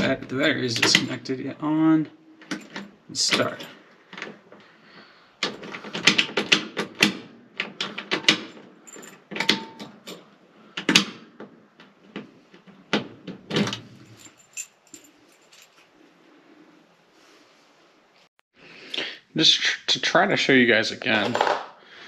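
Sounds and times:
key ring jangling: 0:08.8 - 0:10.3, 0:13.9 - 0:16.0.

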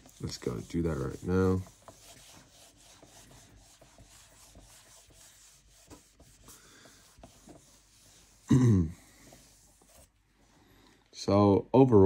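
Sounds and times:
small irregular taps: 0:00.0 - 0:08.4
scratching of writing: 0:00.0 - 0:10.2.

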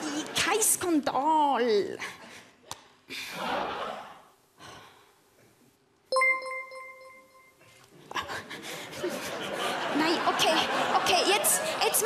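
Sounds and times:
electronic notification chime: 0:06.1 - 0:07.6.

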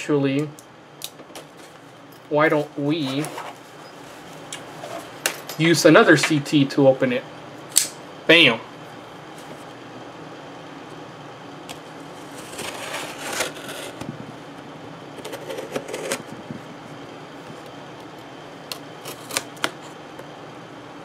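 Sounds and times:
knife slitting packing tape: 0:12.2 - 0:14.0, 0:15.2 - 0:16.2, 0:19.0 - 0:19.8.

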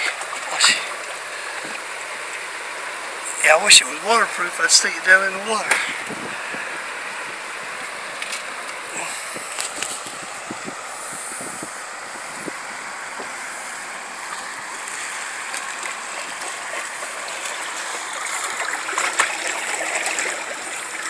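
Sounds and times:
river water lapping against wall: 0:00.0 - 0:21.0.

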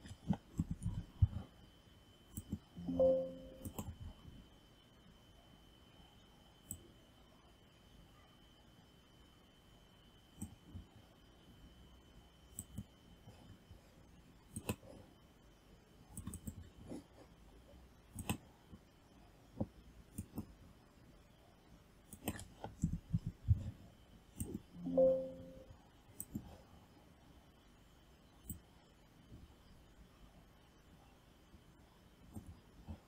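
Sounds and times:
computer mouse clicking: 0:00.0 - 0:01.4, 0:02.3 - 0:02.6, 0:03.6 - 0:04.0, 0:12.5 - 0:12.9, 0:14.5 - 0:14.9, 0:16.1 - 0:16.8, 0:18.1 - 0:18.5, 0:19.6 - 0:20.6, 0:22.1 - 0:23.4, 0:24.4 - 0:24.6, 0:26.2 - 0:26.6, 0:28.4 - 0:28.7.

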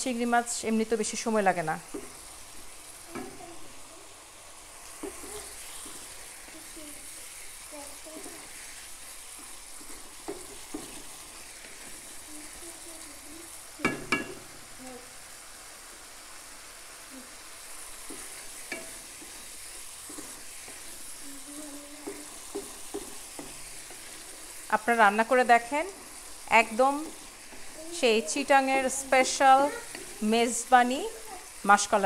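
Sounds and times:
paste and shrimp sizzling in wok: 0:00.0 - 0:32.0
wooden spatula scraping pan: 0:05.0 - 0:12.2, 0:17.9 - 0:30.6
spatula knocking on pan: 0:13.8 - 0:14.4.

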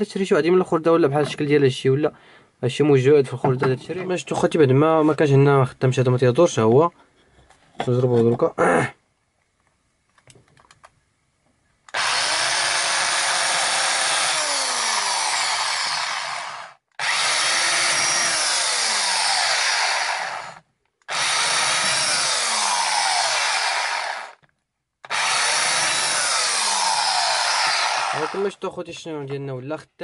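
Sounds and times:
electric drill drilling into wood: 0:11.9 - 0:24.4, 0:25.1 - 0:28.5.

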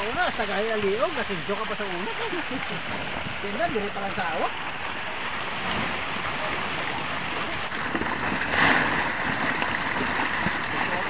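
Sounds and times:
fish thrashing and splashing in net: 0:07.7 - 0:11.0.

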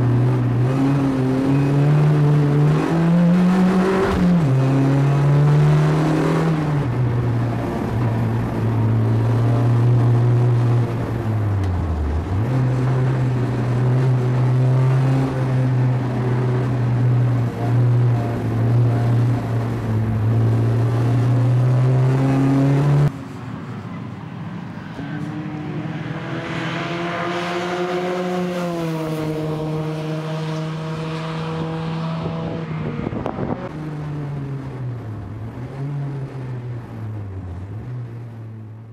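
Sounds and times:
race car engine under load: 0:00.0 - 0:38.9
car passing at speed: 0:24.8 - 0:34.1.

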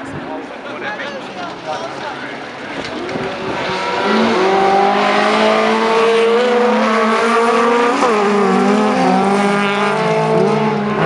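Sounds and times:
race car engines revving: 0:00.0 - 0:11.0.

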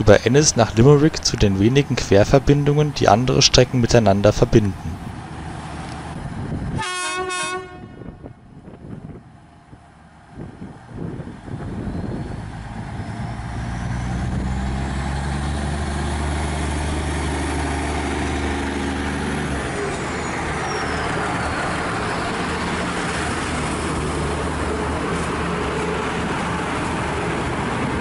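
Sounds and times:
diesel train engine whining: 0:00.0 - 0:28.0
train carriages running past: 0:00.0 - 0:28.0.

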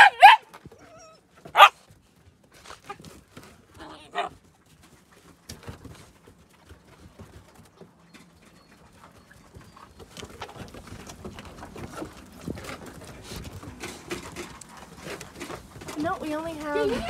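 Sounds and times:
paws and footsteps on icy snow: 0:00.0 - 0:17.0.

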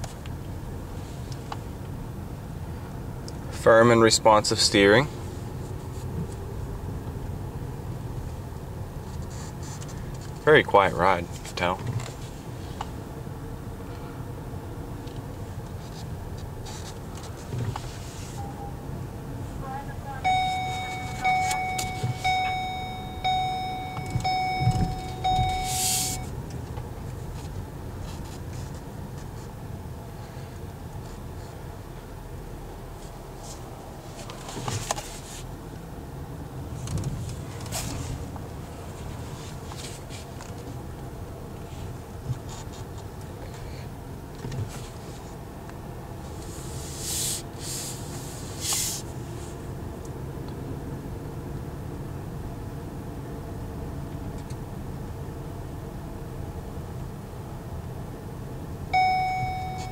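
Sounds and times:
car road and engine noise: 0:00.0 - 0:59.9
car warning chime: 0:18.4 - 0:18.8, 0:19.7 - 0:26.4, 0:58.9 - 0:59.9
short hiss: 0:25.7 - 0:26.2, 0:46.5 - 0:49.1.

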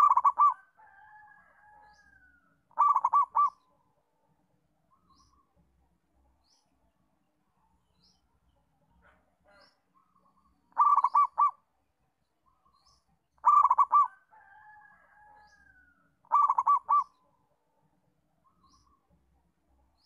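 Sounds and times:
dove cooing: 0:00.0 - 0:00.7, 0:02.7 - 0:03.7, 0:10.7 - 0:11.6, 0:13.4 - 0:14.2, 0:16.2 - 0:17.2.

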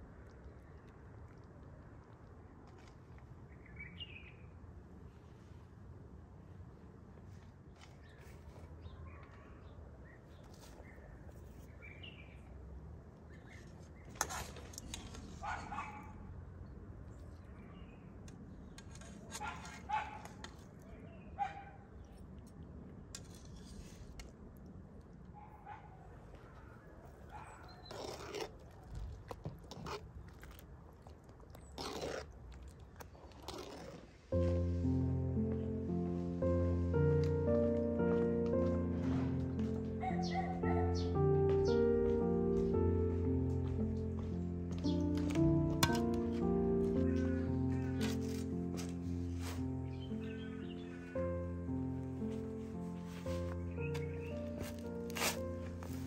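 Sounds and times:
birds chirping: 0:39.5 - 0:56.0.

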